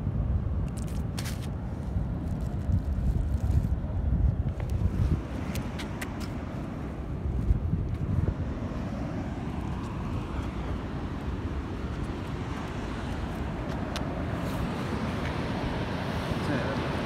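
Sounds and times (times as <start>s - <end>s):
wind buffeting microphone: 0.0s - 17.0s
sea waves washing: 4.8s - 17.0s.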